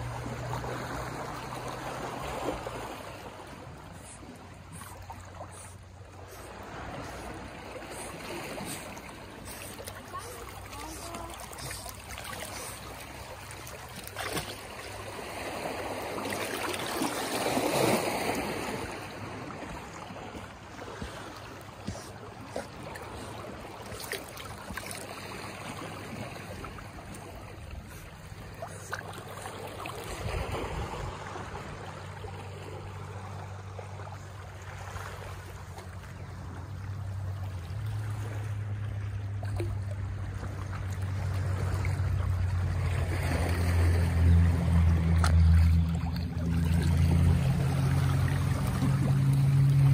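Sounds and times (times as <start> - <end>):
water lapping and splashing: 0.0 - 49.9
low steady hum: 18.8 - 49.9.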